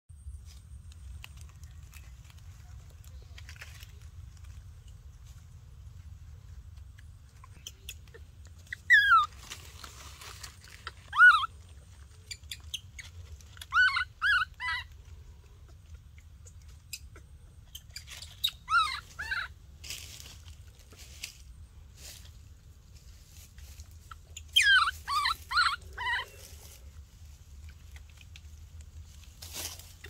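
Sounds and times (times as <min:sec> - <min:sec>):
faint low rumble: 0:00.1 - 0:30.0
baby monkey crying: 0:07.6 - 0:09.4, 0:10.8 - 0:11.6, 0:12.3 - 0:19.6, 0:24.1 - 0:26.7.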